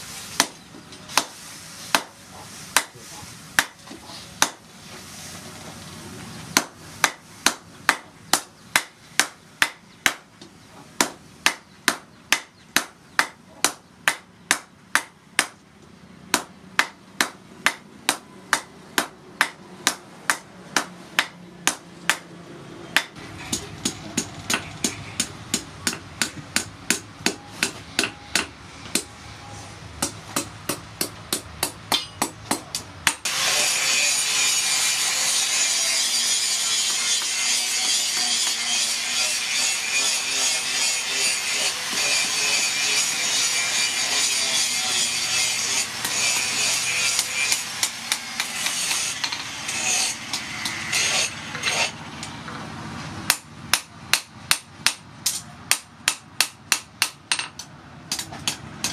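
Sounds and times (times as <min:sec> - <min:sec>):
hammer striking steel on anvil: 0:23.0 - 0:29.2, 0:30.0 - 0:33.3, 0:36.0 - 0:52.4, 0:53.3 - 0:58.9.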